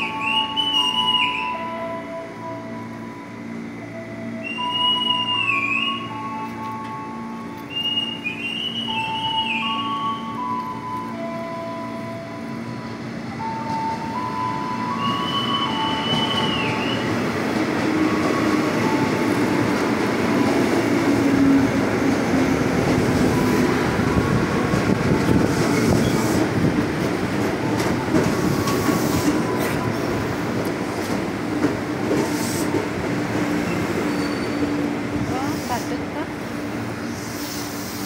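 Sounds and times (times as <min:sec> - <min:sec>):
train rumbling past: 0:00.0 - 0:38.0
high wheel squeal: 0:33.7 - 0:35.8.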